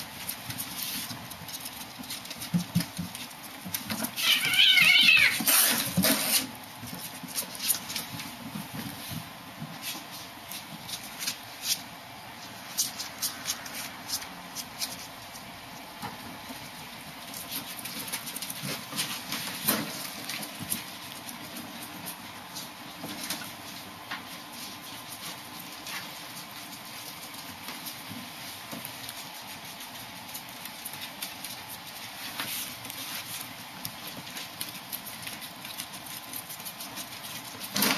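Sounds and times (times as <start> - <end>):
animals scuffling at play: 0.0 - 37.9
paws tapping on wire cage: 0.0 - 37.9.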